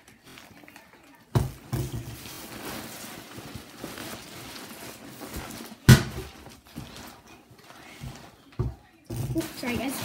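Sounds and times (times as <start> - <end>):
backpack rustling: 2.1 - 8.4.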